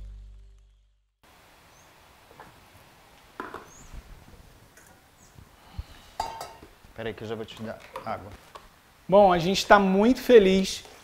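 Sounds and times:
dishes and utensils clinking: 6.2s - 6.7s.

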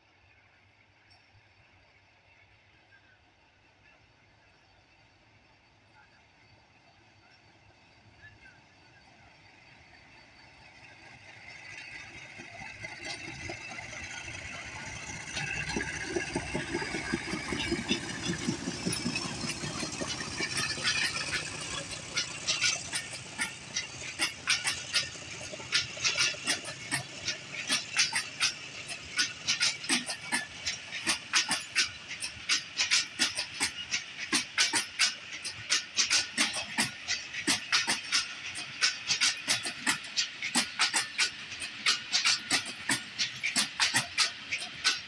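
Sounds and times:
diesel locomotive engine throbbing: 0.2s - 45.0s
wheels clacking over rail joints: 10.6s - 45.0s.

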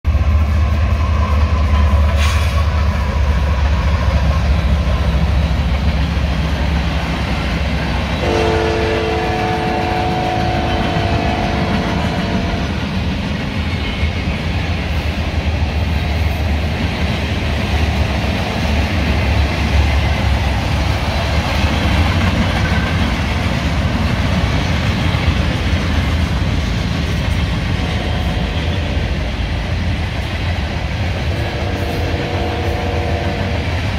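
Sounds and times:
freight train rumbling past: 0.0s - 33.9s
train wheels clattering: 0.1s - 33.9s
locomotive air horn chord: 8.2s - 12.8s, 31.4s - 33.6s.

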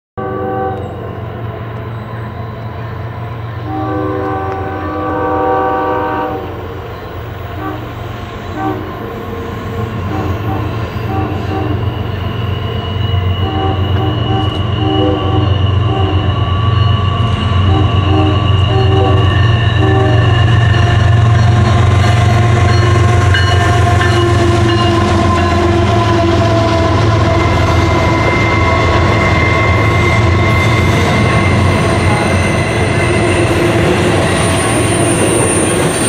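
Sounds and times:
train air horn chord: 0.2s - 1.0s, 3.6s - 6.7s, 7.6s - 9.1s, 10.0s - 12.0s, 13.4s - 16.3s, 17.6s - 20.3s, 22.5s - 27.4s
locomotive rumble: 0.2s - 36.0s.

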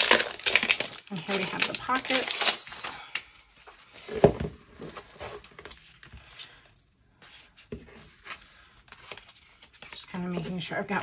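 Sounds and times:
paper cards rustling: 7.2s - 10.7s.

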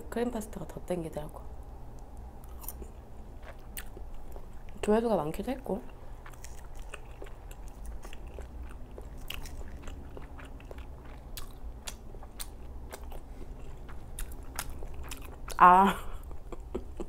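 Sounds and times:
person chewing food: 2.4s - 4.8s, 5.8s - 17.0s.

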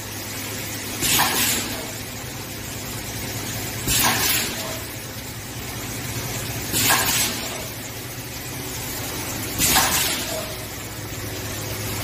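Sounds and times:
machine line humming: 0.0s - 12.0s.

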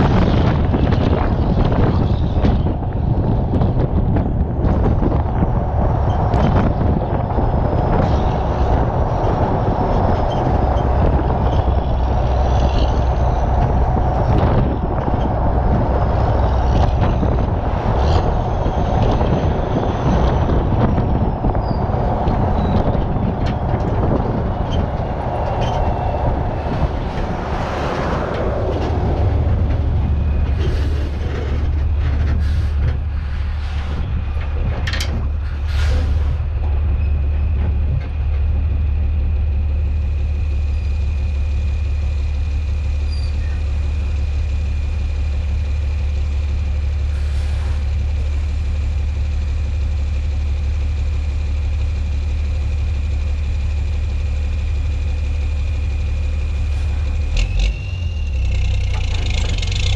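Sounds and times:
rig clicks and rattles: 0.0s - 38.9s
road and tyre noise: 0.0s - 59.9s
truck engine drone: 0.0s - 59.9s.

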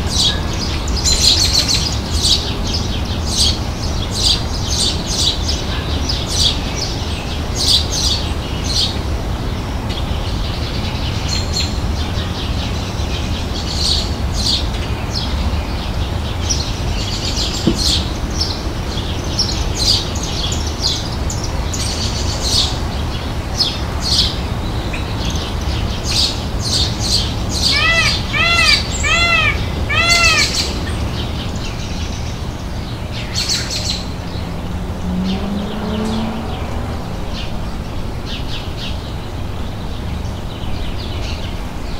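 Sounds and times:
small birds chirping: 0.0s - 41.9s
peacock calls: 27.0s - 31.2s.

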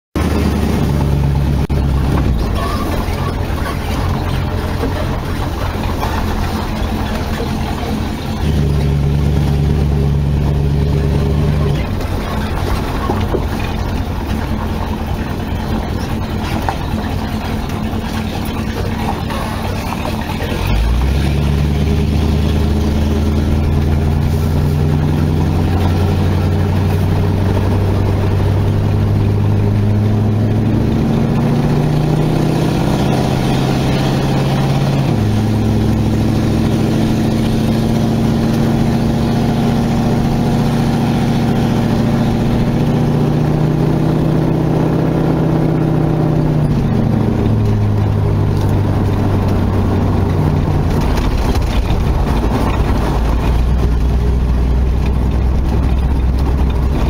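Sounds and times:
car engine running: 0.1s - 57.0s.

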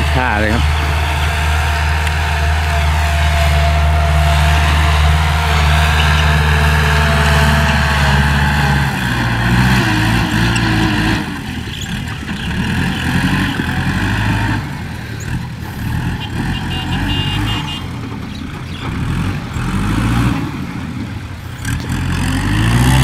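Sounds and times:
tractor diesel engine under load: 0.0s - 23.0s.

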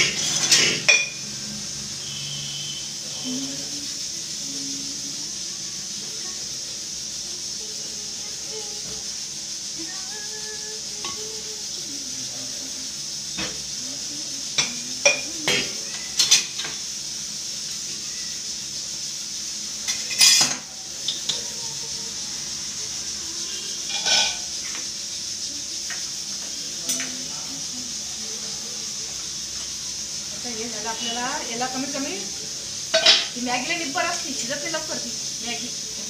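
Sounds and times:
steel dishes clattering: 0.0s - 1.2s, 19.9s - 20.6s
steady hiss: 0.0s - 36.0s.

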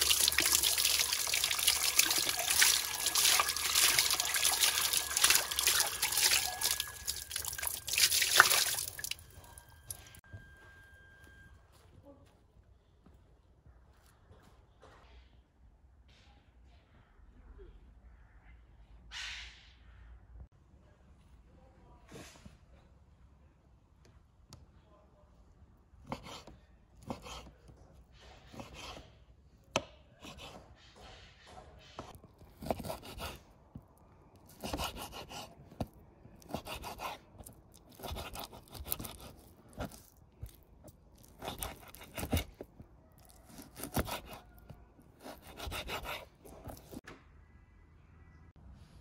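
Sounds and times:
knife slicing raw meat: 32.4s - 33.4s, 34.4s - 47.0s.

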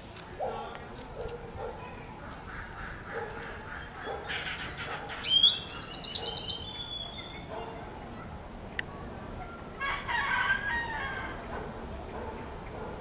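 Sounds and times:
bird trilling call: 3.8s - 7.5s.

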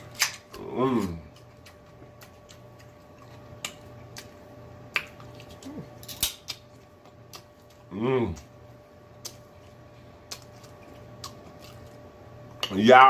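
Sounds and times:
chewing: 0.2s - 12.8s
person humming: 7.9s - 8.4s.

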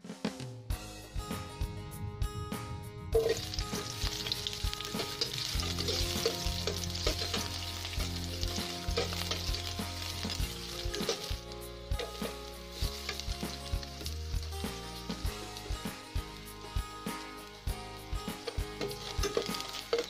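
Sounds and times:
spatula stirring in pan: 3.2s - 15.7s, 18.4s - 20.0s
onion sizzling in hot oil: 3.2s - 20.0s.

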